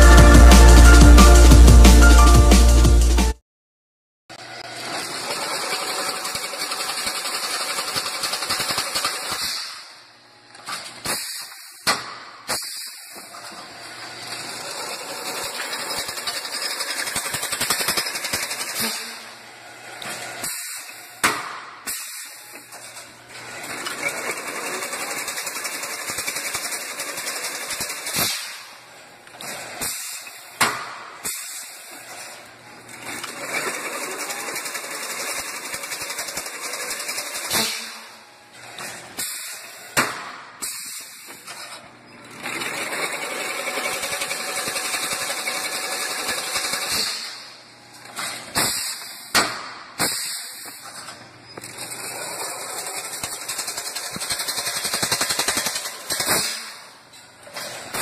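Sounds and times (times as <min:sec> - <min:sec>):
fence weaving machine rushing: 0:04.4 - 0:09.8, 0:13.4 - 0:21.0, 0:22.8 - 0:28.8, 0:31.6 - 0:40.0, 0:41.5 - 0:49.0, 0:51.6 - 0:58.0.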